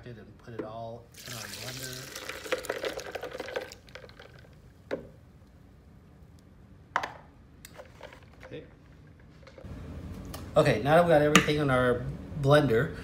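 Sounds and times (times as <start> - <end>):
juice pouring over ice: 1.1 - 4.6.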